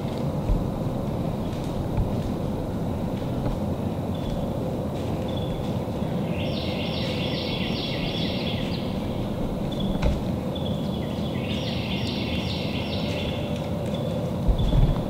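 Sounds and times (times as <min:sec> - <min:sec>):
low background rumble: 0:00.0 - 0:12.0, 0:13.5 - 0:15.0
songbird whistled song: 0:05.2 - 0:15.0.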